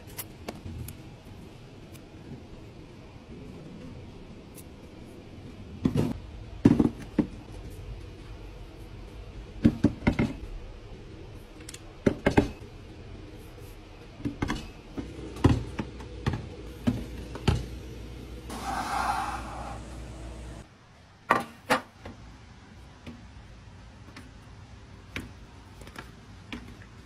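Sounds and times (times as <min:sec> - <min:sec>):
rasping rubbing noise: 0:18.5 - 0:20.0.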